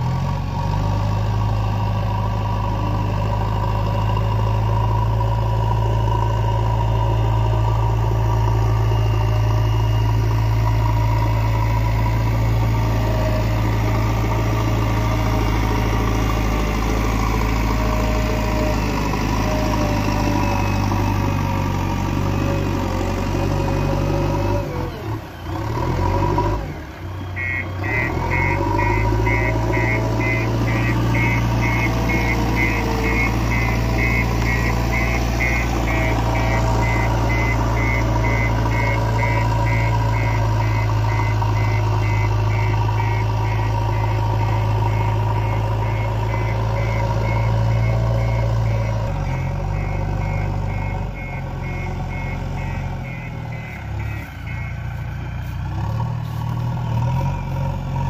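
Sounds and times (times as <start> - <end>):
diesel engine running: 0.0 - 58.0
reverse alarm beeping: 1.5 - 57.6.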